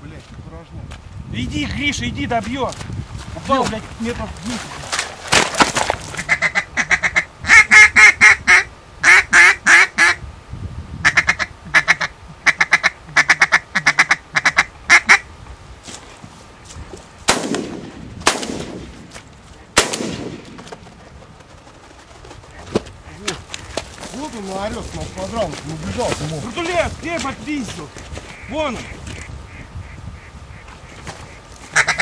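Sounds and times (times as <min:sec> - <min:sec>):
duck call quacks: 0:06.2 - 0:10.2, 0:11.0 - 0:15.3, 0:28.3 - 0:32.0
sharp bangs with echo: 0:17.3 - 0:20.8.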